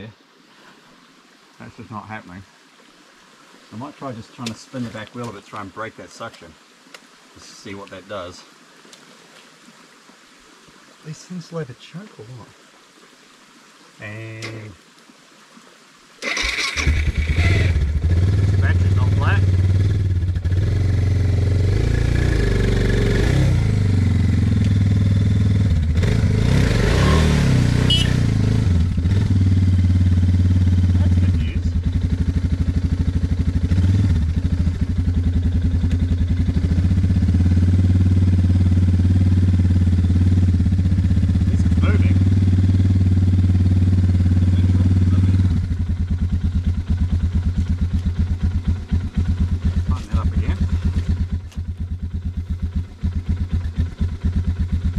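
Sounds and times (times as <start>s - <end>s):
motorcycle engine revving: 16.2s - 54.9s.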